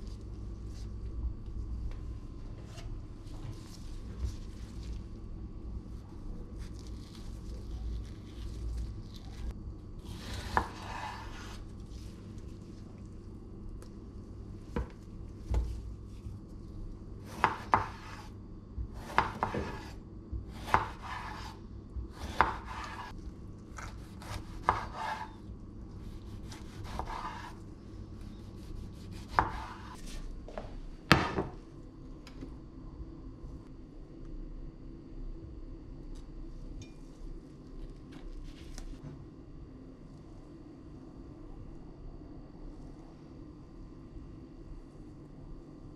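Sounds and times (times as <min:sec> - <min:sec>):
knife cutting tomatoes: 0:19.0 - 0:23.1, 0:23.7 - 0:25.4, 0:26.0 - 0:27.6, 0:28.5 - 0:30.2.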